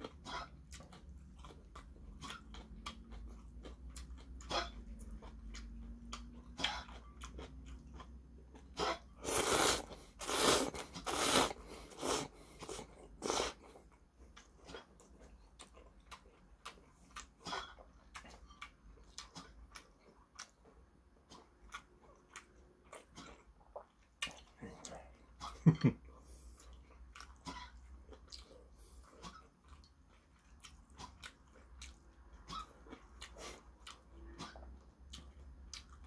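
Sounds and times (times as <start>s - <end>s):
chewing with mouth clicks: 0.0s - 36.0s
person slurping noodles: 8.8s - 13.7s.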